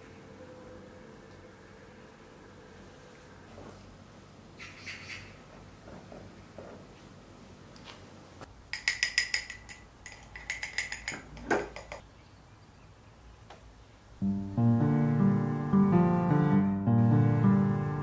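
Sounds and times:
guitar music: 0:14.2 - 0:18.0.

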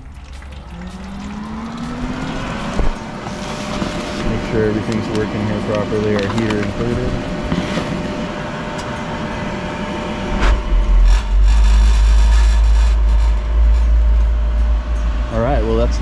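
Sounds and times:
pool equipment running: 0:00.0 - 0:09.9
low burner rumble: 0:00.0 - 0:16.0.

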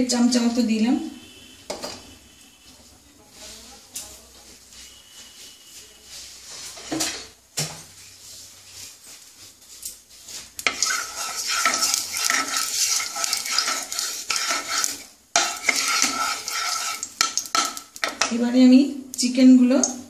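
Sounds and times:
wooden spatula scraping a pan: 0:03.3 - 0:18.4
hot oil sizzling: 0:09.6 - 0:20.0.

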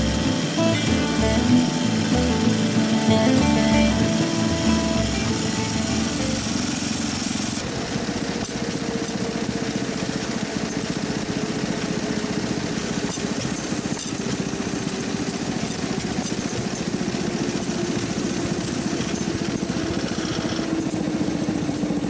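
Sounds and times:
small engine puttering: 0:00.0 - 0:22.0.

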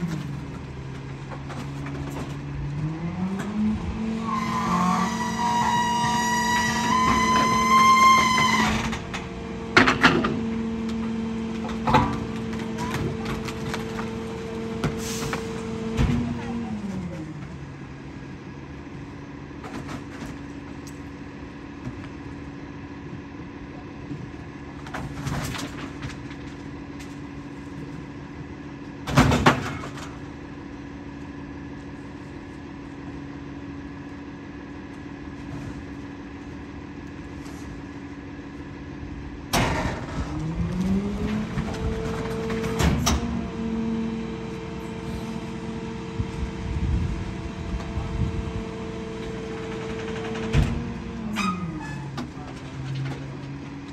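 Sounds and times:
engine revving up: 0:02.6 - 0:05.2, 0:39.8 - 0:44.0
garbage truck engine idling: 0:05.2 - 0:53.9
trash thumping into hopper: 0:11.5 - 0:17.5, 0:29.0 - 0:30.3.

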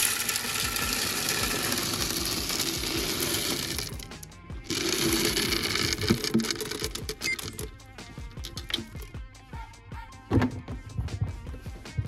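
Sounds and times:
dry kibble pouring and rattling: 0:00.0 - 0:07.7, 0:08.4 - 0:09.0.

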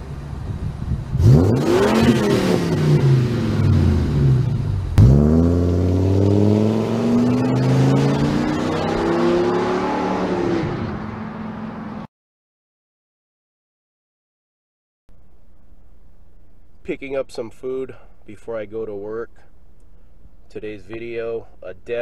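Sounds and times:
van engine revving: 0:00.0 - 0:11.2.

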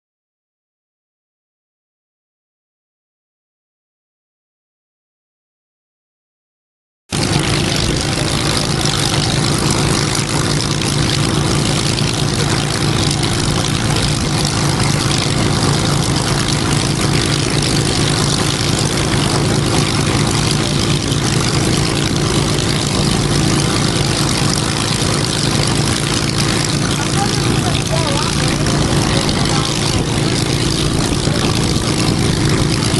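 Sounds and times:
piston aircraft engine idling: 0:07.1 - 0:32.9.

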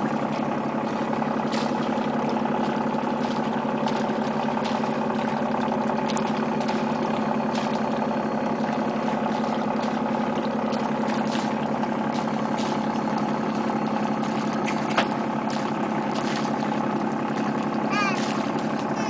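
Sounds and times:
boat engine idling: 0:00.0 - 0:19.0.

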